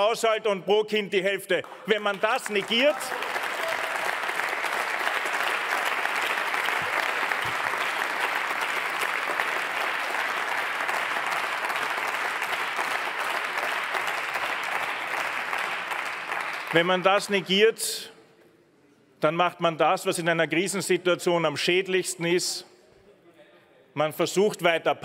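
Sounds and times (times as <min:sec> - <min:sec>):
crowd applauding in a large chamber: 0:01.5 - 0:17.8.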